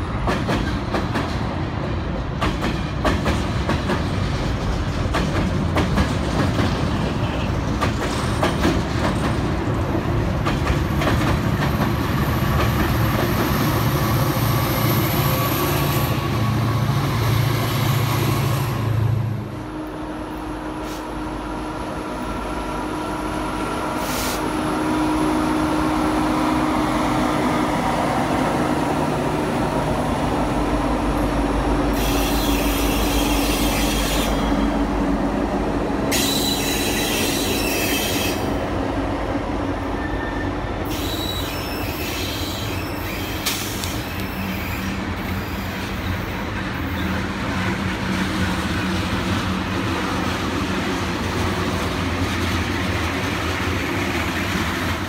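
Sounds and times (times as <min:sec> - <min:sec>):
diesel locomotive engines: 0:00.0 - 0:55.0
steel wheels squealing on rail: 0:12.0 - 0:19.2, 0:23.3 - 0:24.7, 0:31.8 - 0:34.8, 0:36.1 - 0:38.7, 0:39.8 - 0:47.6.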